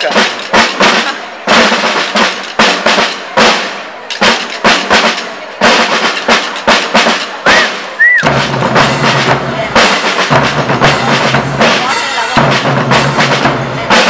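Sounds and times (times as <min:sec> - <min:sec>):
rolling snare drums: 0:00.0 - 0:14.0
bass drum beats: 0:06.9 - 0:14.0.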